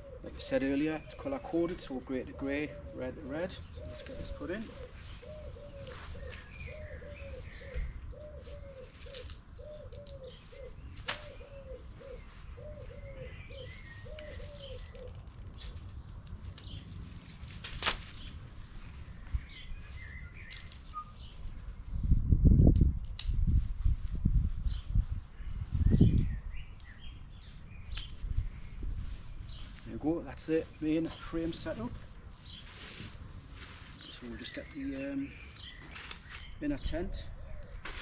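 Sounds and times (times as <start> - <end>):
pigeon cooing: 0.0 - 0.8, 2.1 - 15.2
small bird chirps: 19.2 - 22.2.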